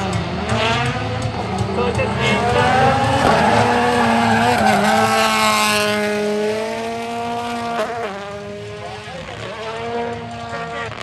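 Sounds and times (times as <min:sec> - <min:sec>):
rally car engine at high revs: 0:00.0 - 0:11.0
tyre squeal: 0:03.3 - 0:05.2.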